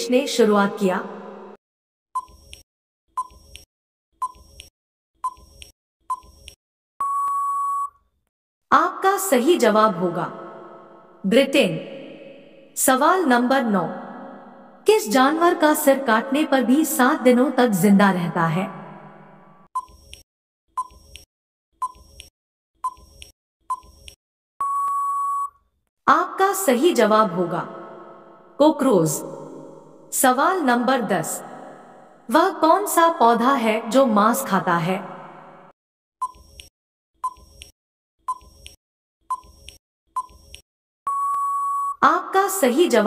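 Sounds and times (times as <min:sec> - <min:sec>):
countdown timer beeps: 0:07.0 - 0:07.9, 0:24.6 - 0:25.5, 0:41.1 - 0:42.0
long steady beep: 0:07.0 - 0:08.0, 0:24.6 - 0:25.6, 0:41.1 - 0:42.0.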